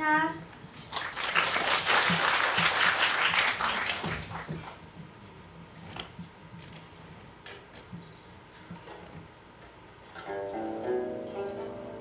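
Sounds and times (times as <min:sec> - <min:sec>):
audience applauding: 0:00.9 - 0:04.8.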